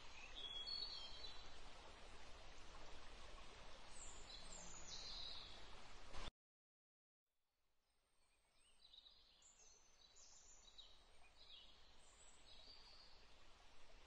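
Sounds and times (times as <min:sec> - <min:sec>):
faint forest ambience: 0:00.0 - 0:06.3, 0:08.1 - 0:14.0.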